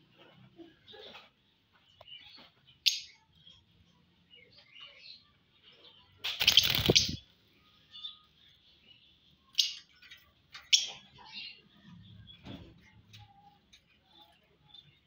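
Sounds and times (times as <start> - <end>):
budgerigars chirping: 6.4 - 7.2.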